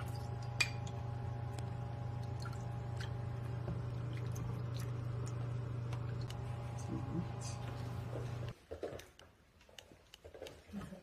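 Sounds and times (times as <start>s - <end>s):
steady low hum: 0.0s - 8.6s.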